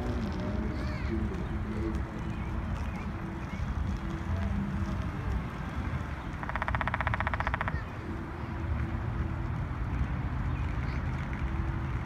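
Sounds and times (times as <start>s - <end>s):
woodpecker drumming: 6.3s - 7.9s.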